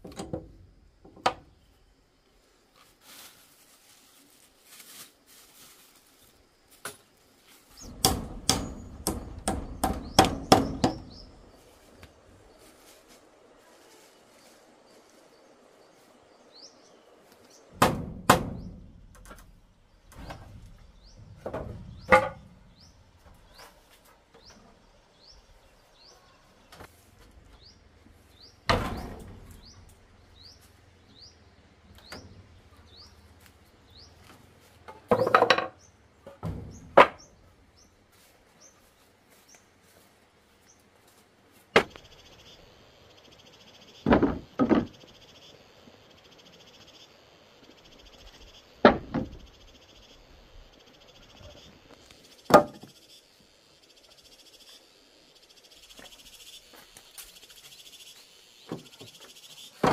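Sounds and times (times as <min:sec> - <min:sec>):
knocks and thuds of woodwork: 0:00.0 - 0:01.5, 0:07.8 - 0:11.4, 0:17.8 - 0:19.5, 0:20.1 - 0:22.6, 0:28.6 - 0:29.6, 0:34.8 - 0:37.3, 0:41.8 - 0:42.0, 0:44.0 - 0:45.0, 0:48.8 - 0:49.4, 0:52.5 - 0:53.0, 0:58.7 - 0:59.9
chorus of frogs and insects: 0:41.8 - 0:59.9
small bird chirping: 0:44.9 - 0:59.8.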